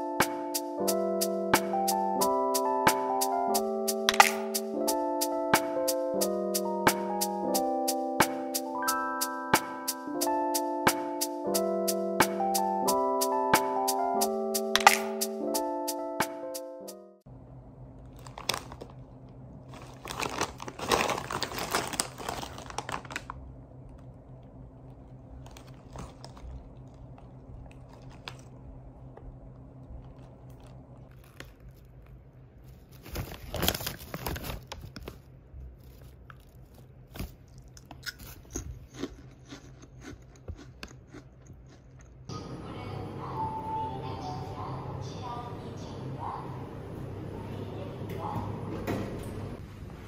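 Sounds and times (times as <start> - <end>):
steady low hum: 17.2 - 33.0, 35.2 - 50.0
chewing crunchy chips: 18.0 - 35.2, 35.8 - 42.3
plastic snack bag crackling: 18.0 - 41.2.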